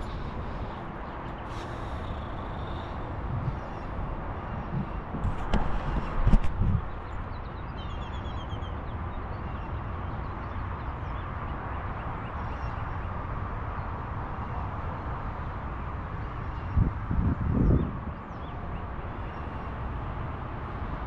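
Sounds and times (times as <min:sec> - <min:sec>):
wind rumbling on microphone: 0:00.0 - 0:11.2, 0:12.7 - 0:21.0.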